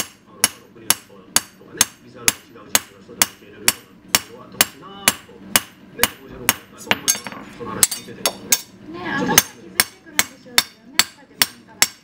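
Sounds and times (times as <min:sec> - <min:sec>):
hammer striking blade on anvil: 0:00.0 - 0:08.7.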